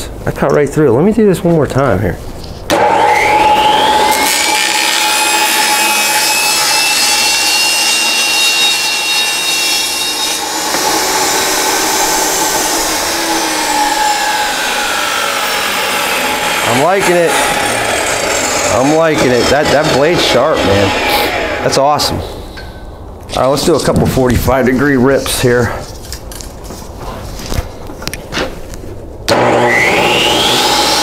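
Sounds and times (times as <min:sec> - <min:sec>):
saw blade ripping plywood: 0:02.7 - 0:19.6
table saw whine: 0:02.7 - 0:22.6, 0:29.3 - 0:31.0.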